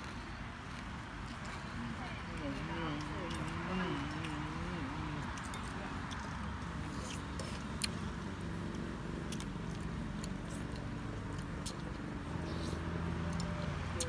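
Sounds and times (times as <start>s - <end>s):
people chewing: 0.0s - 14.0s.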